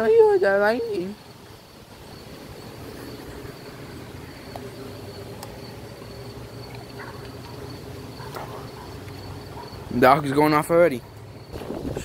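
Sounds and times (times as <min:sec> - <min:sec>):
insects trilling: 0:00.0 - 0:12.0
wind rumble on microphone: 0:11.5 - 0:12.0.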